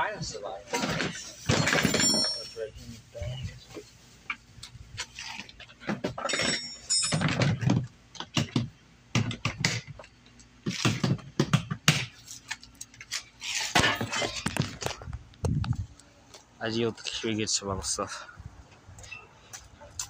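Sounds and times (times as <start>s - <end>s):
camping gear rustling and clinking: 0.7s - 7.9s.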